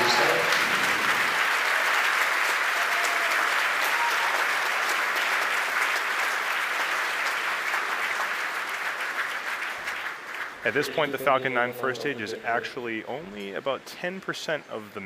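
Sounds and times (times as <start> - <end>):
crowd applauding: 0.0 - 12.2.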